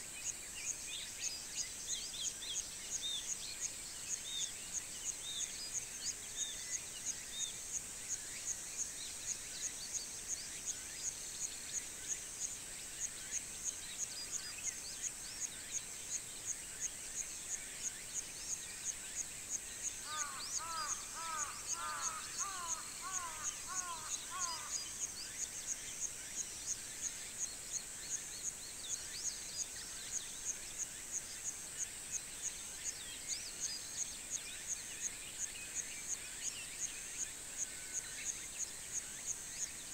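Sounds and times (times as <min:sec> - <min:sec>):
bird repeated lower calls: 0:20.1 - 0:24.9
insect buzzing: 0:20.1 - 0:25.4.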